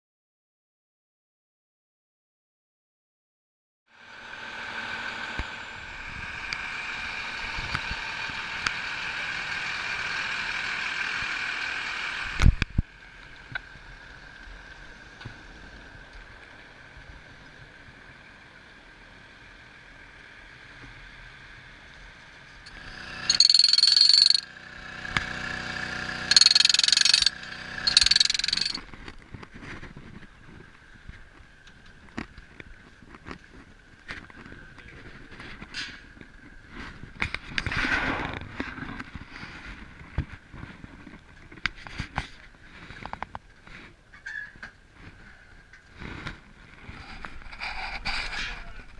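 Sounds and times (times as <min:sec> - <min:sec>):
truck engine running: 0:22.7 - 0:28.8.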